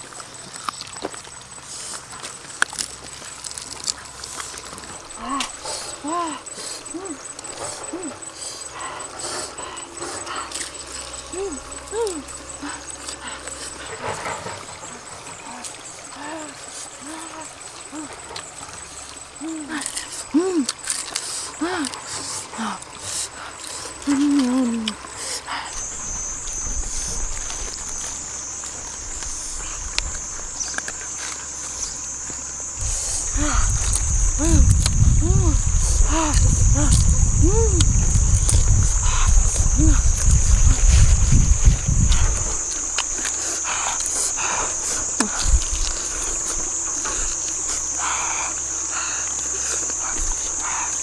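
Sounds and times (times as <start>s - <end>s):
crunchy chewing: 0.0s - 51.0s
high-pitched insect drone: 0.0s - 51.0s
wind rumble on microphone: 25.7s - 30.7s, 31.7s - 47.9s.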